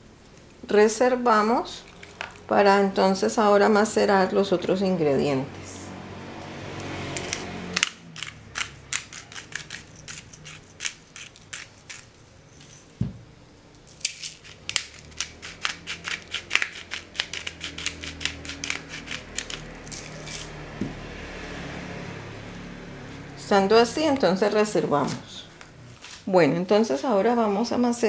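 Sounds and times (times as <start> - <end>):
spice mill grinding clicks: 7.2 - 12.1, 14.0 - 20.5.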